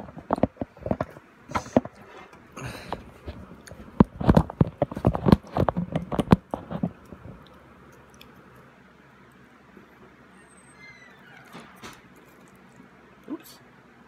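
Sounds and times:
phone handling knocks and rubbing: 4.0 - 7.2.

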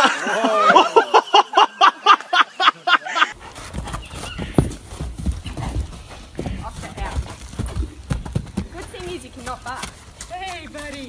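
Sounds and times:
horse hooves thudding on sand: 3.3 - 11.0.

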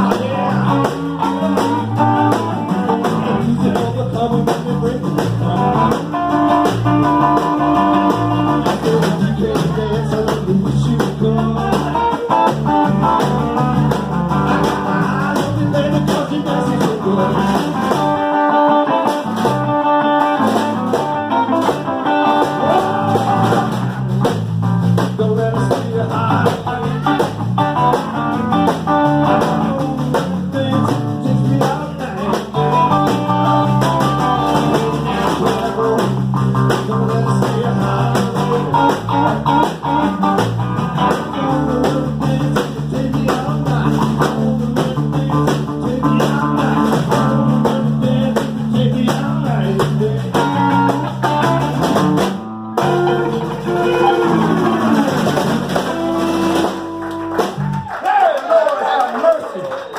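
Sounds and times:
person singing: 0.0 - 24.3, 25.0 - 51.9, 52.8 - 57.0
electric guitar: 0.0 - 58.0
bass guitar: 0.0 - 58.1
snare drum: 53.6 - 57.7.

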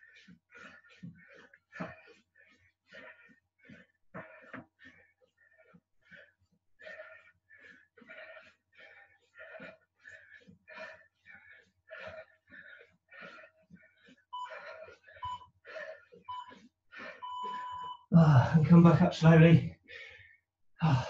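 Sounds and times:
person panting hard: 0.0 - 18.6, 19.7 - 21.0
interval timer beeping: 14.4 - 15.4, 16.3 - 16.6, 17.2 - 18.1.

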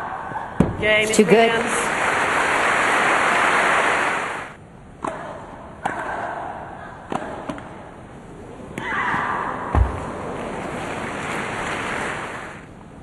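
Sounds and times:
crowd applause: 1.6 - 4.6, 10.2 - 12.7
tennis rackets hitting ball: 5.0 - 6.3, 7.1 - 7.8.

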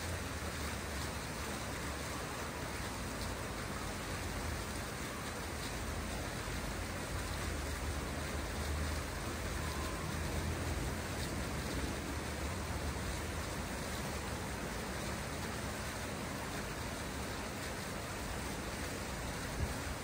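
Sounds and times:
fountain water splashing: 0.0 - 20.0.

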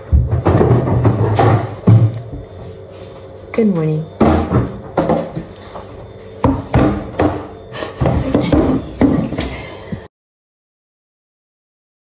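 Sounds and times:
sharp knocks and clattering: 0.0 - 2.4, 4.2 - 9.6.

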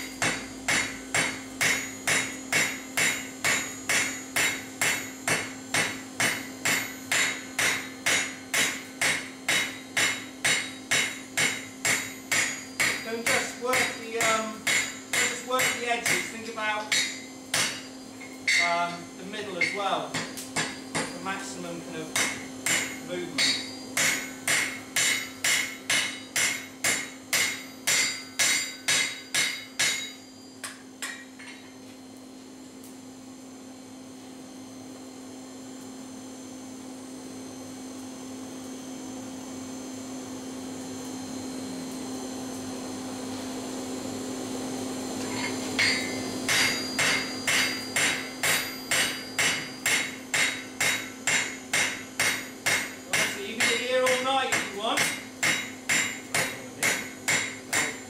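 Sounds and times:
hammer striking steel on anvil: 0.0 - 21.4, 22.1 - 31.8, 45.2 - 58.0
constant low hum: 0.0 - 40.2, 41.0 - 58.0.

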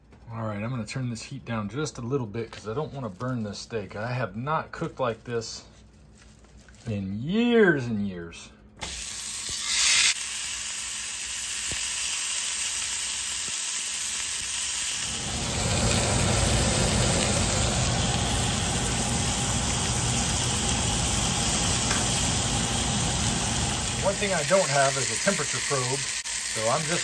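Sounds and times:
steak sizzling in skillet: 8.9 - 27.0.

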